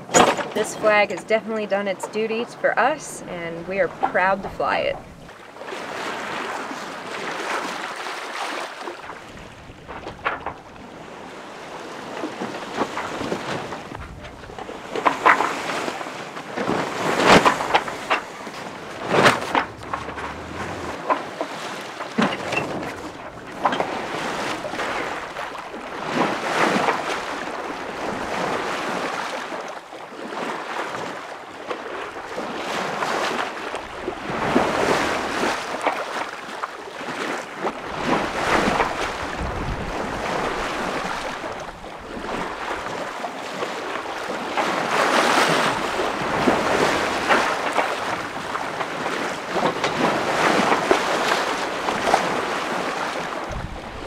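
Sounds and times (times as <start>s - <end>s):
water splashing along boat hull: 0.0s - 54.0s
wind buffeting microphone: 9.0s - 29.0s, 37.7s - 43.1s, 43.8s - 54.0s.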